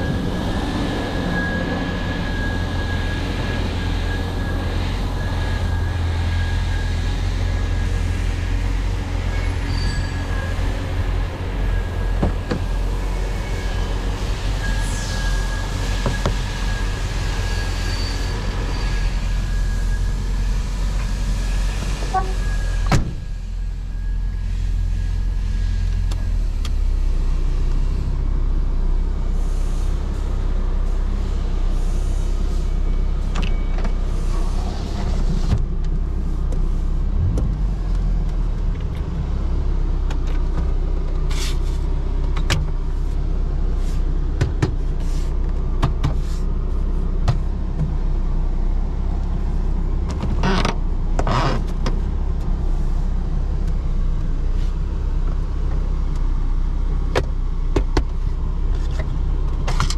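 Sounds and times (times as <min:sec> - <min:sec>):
car engine running: 0:00.0 - 0:22.3
road noise: 0:00.0 - 0:59.9.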